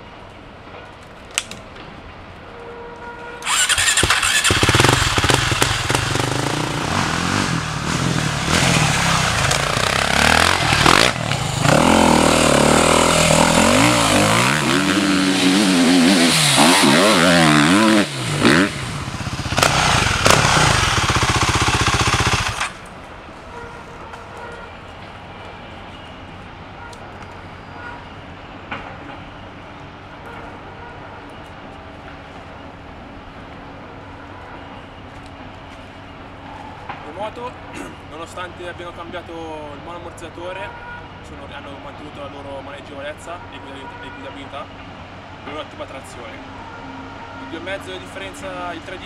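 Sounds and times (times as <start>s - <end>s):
motorcycle engine revving: 3.4s - 22.8s.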